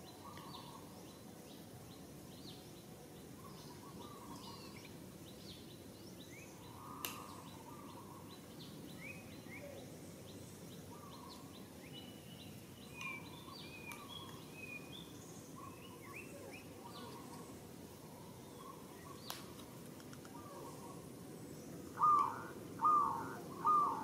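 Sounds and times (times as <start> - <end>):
low background noise: 0.0 - 24.0.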